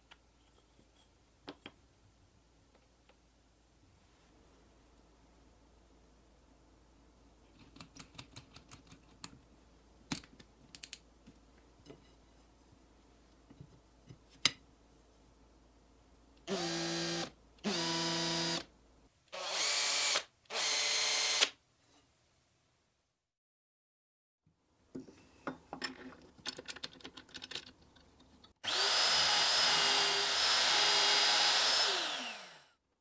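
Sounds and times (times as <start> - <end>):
drill motor whirring: 16.5 - 18.6, 19.4 - 21.5, 28.6 - 32.8.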